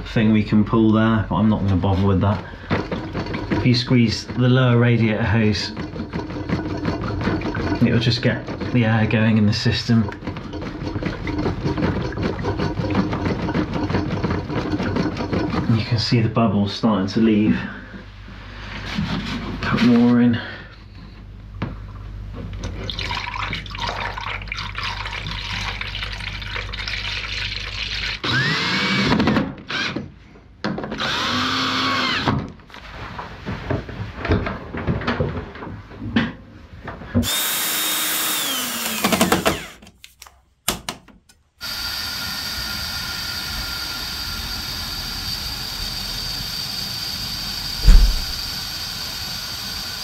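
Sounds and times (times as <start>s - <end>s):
liquid pouring through funnel: 2.2s - 15.8s, 22.6s - 28.2s, 47.8s - 48.6s
cordless drill driving screws: 28.2s - 30.0s, 30.9s - 32.4s, 37.2s - 39.9s
sharp knock: 47.8s - 48.4s.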